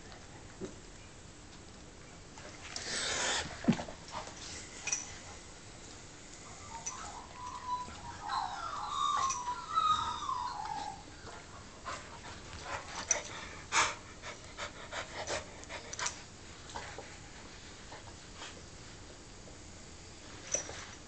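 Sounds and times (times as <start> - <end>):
dog whining: 6.4 - 11.4.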